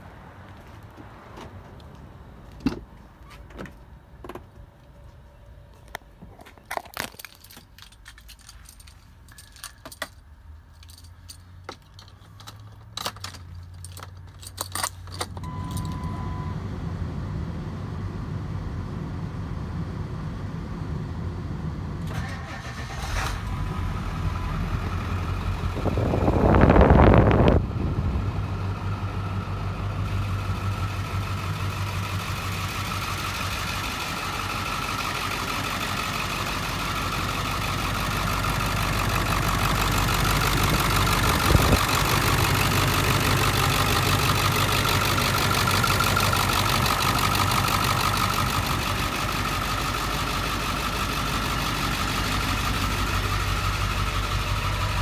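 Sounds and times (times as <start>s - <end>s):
keys jangling: 6.8s - 16.0s
diesel engine starting and idling: 13.9s - 55.0s.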